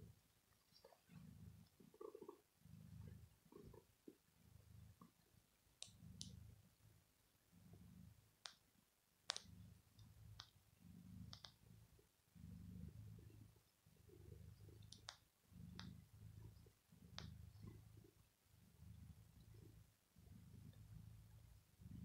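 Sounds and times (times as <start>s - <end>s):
cat purring: 0.0s - 8.6s, 9.2s - 22.0s
faint sharp clicks: 5.0s - 6.4s, 8.4s - 10.6s, 11.2s - 11.8s, 14.5s - 17.8s.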